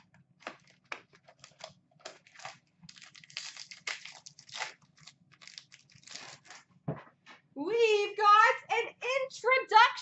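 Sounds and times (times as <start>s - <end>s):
wrapper crinkling: 0.0s - 6.7s.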